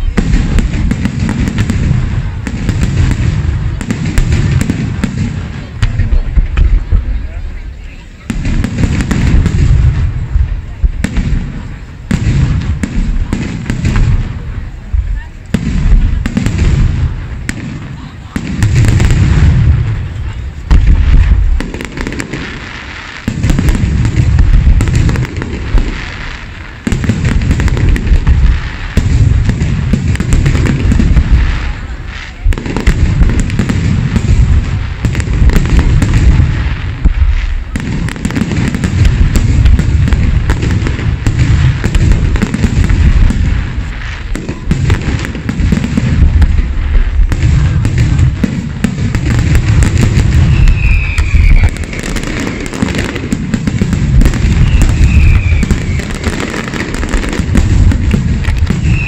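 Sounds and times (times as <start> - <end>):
crackling fireworks: 0.0 - 59.0
fireworks shells bursting: 37.0 - 59.0.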